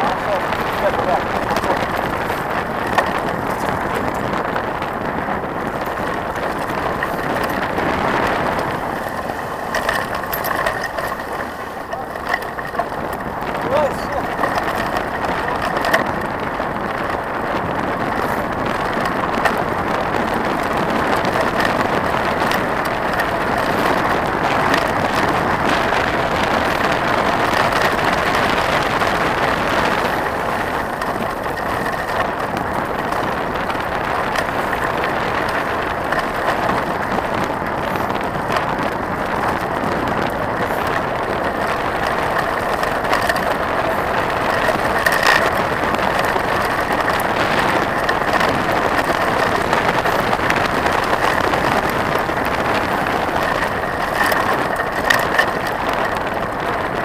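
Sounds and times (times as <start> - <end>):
bike rattling: 0.0 - 57.0
bike tyres on gravel: 0.0 - 57.0
sharp clicks and knocks: 5.6 - 16.2, 39.4 - 56.4.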